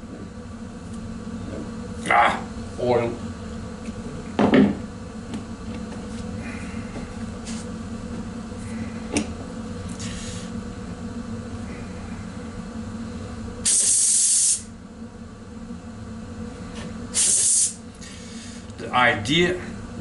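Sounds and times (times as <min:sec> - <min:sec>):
steady hum: 0:00.0 - 0:20.0
compressed air puffs and blasts: 0:09.9 - 0:10.6, 0:13.6 - 0:14.7, 0:17.1 - 0:18.7.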